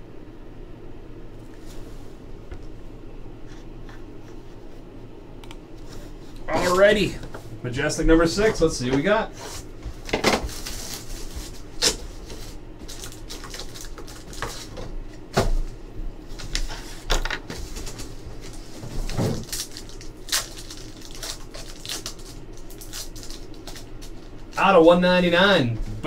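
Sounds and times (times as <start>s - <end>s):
foil pack crinkling: 10.0s - 14.9s, 16.4s - 24.6s.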